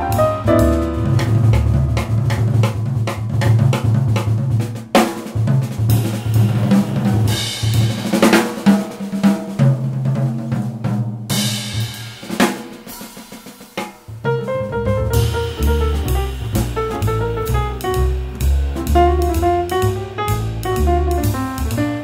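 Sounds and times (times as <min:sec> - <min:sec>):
bass line: 0:00.0 - 0:04.2, 0:14.2 - 0:22.0
fast drum-kit beat: 0:00.0 - 0:22.0.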